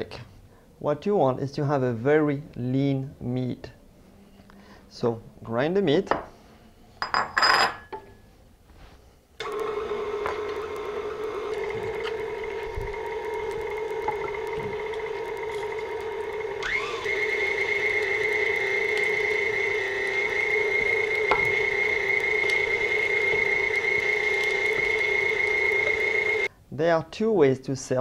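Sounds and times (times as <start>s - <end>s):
mixer motor whine: 9.4s - 26.5s.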